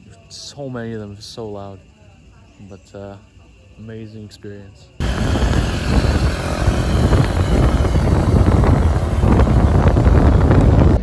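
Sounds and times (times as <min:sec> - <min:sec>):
vehicle in motion rushing: 0:05.0 - 0:11.0
wind buffeting microphone: 0:05.0 - 0:11.0.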